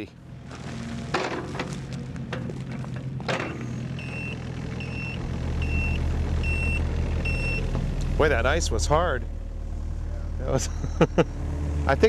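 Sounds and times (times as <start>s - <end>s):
excavator diesel engine running: 0.0s - 12.0s
travel alarm beeping: 4.0s - 7.7s.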